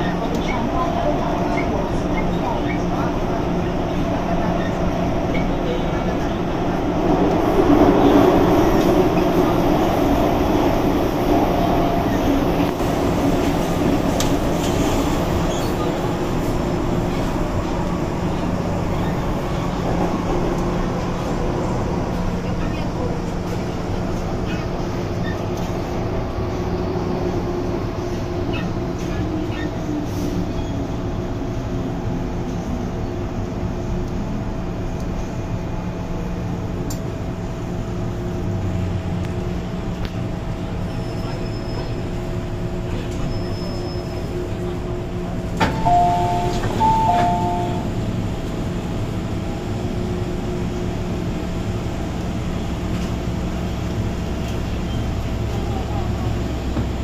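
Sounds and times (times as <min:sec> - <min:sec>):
metro car humming: 0:00.0 - 0:57.0
two-tone door chime: 0:45.8 - 0:47.9.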